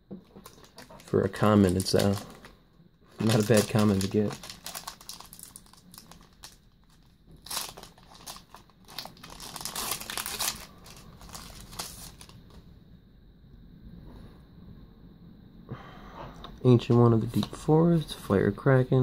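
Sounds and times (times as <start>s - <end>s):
foil wrapper crinkling and tearing: 0.4s - 2.5s, 3.1s - 12.4s.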